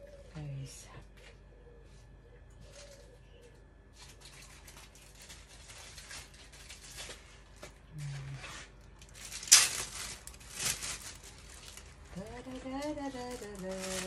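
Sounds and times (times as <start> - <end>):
paper and plastic bag rustling: 3.9 - 14.0.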